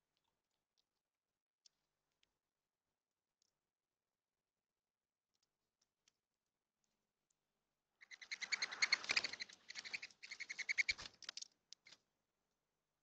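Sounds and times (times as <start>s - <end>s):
dove wings whistling: 8.1s - 11.0s.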